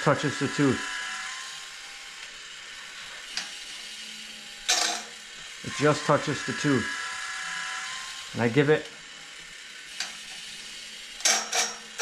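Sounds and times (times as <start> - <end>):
steady motor hum: 0.0 - 12.0
sharp metallic clack: 11.2 - 11.8.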